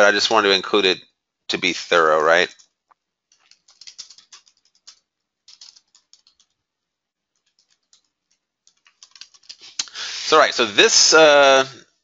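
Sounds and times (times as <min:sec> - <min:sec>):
faint typing on computer keyboard: 0:02.5 - 0:10.0.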